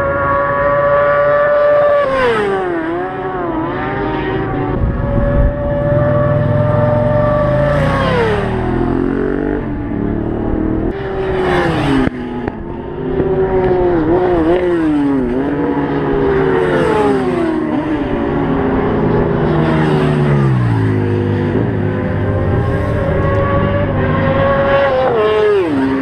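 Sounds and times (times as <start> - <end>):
motorbike passing by: 0.0 - 26.0
sportbike engines at high revs: 0.0 - 26.0
wind buffeting microphone: 4.6 - 6.3.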